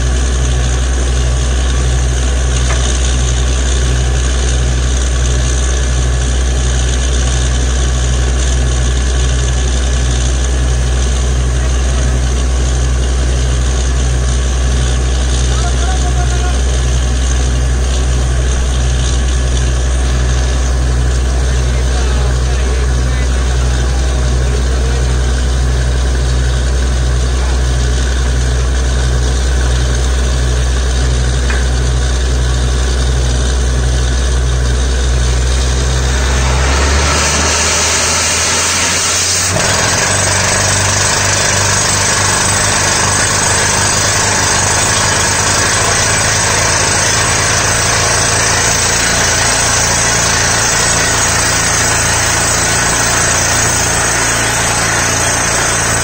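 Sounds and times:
drilling rig engine throbbing: 0.0s - 56.0s
compressed air rushing: 34.6s - 40.0s.

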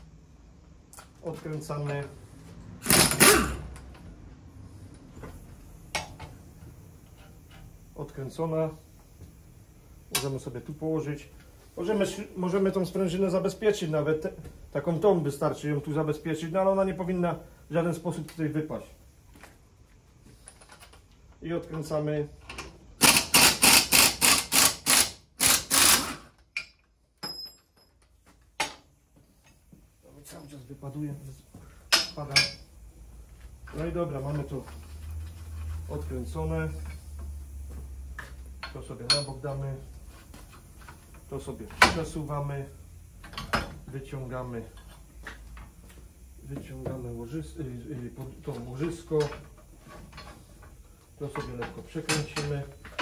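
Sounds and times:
ratchet wrench stroke: 23.0s - 26.7s
small metallic clicks and knocks: 26.4s - 29.6s
bright metal clink: 26.6s - 27.9s, 39.1s - 39.4s.

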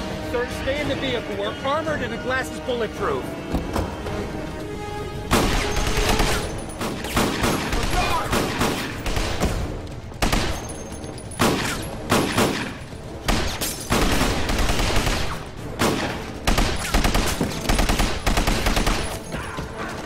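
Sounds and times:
automatic gunfire bursts: 13.3s - 19.2s.

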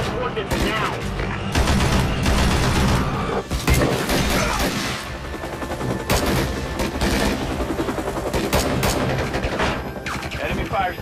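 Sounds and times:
sharp gunshots: 0.0s - 5.1s, 6.1s - 7.5s, 8.3s - 10.4s.

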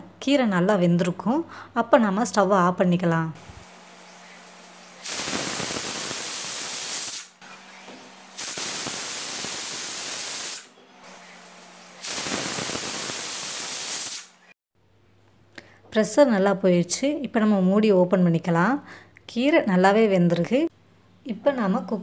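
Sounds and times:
loud steam hiss: 3.6s - 7.4s, 8.3s - 14.4s
pressure cooker whistling: 4.9s - 10.8s, 12.0s - 14.3s.

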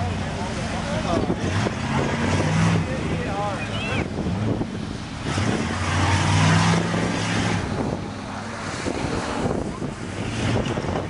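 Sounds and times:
truck engine revving: 0.0s - 11.0s
wind on microphone: 4.0s - 11.0s.

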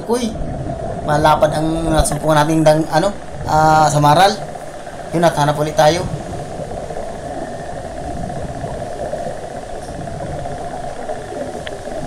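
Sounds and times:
muffled underwater hiss: 0.0s - 12.0s.

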